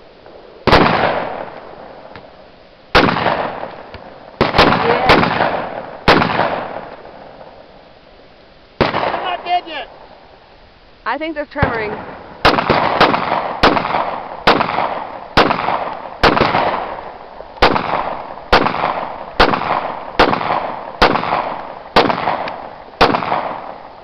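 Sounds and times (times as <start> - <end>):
pistol shots with echo: 0.6 - 2.1, 2.9 - 7.6, 8.8 - 9.4, 11.6 - 23.9.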